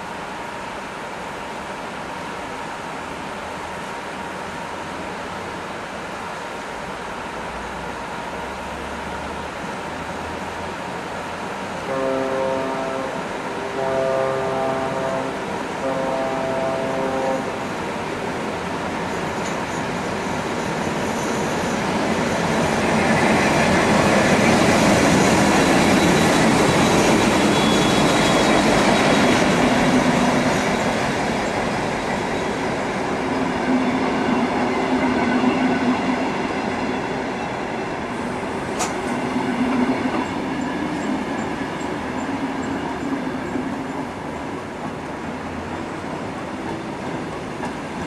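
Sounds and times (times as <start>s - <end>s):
diesel locomotive running: 6.7s - 48.0s
sharp click: 38.8s - 39.1s.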